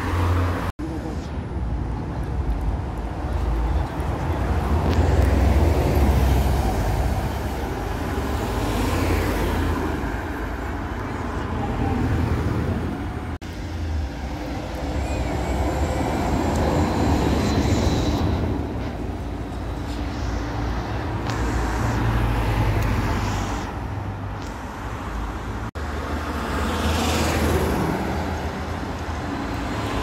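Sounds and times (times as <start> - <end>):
bus engine rumble: 0.0 - 30.0
trolleybus electric whine: 4.6 - 23.2.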